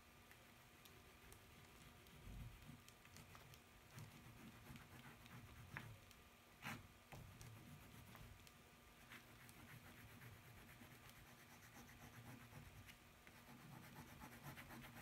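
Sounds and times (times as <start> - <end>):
small ticks: 0.2 - 6.2
pastel scratching on paper: 3.9 - 6.0, 6.6 - 8.4, 9.0 - 15.0.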